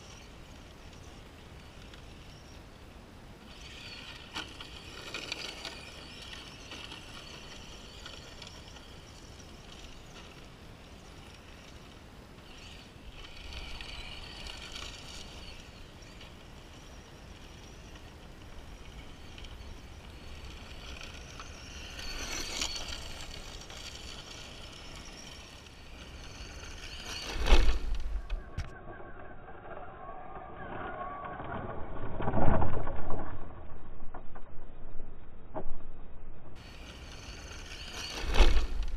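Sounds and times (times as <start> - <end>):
electric rc truck motor: 0.0 - 2.8, 3.4 - 31.3, 36.6 - 38.9
tyres on gravel: 3.5 - 28.7.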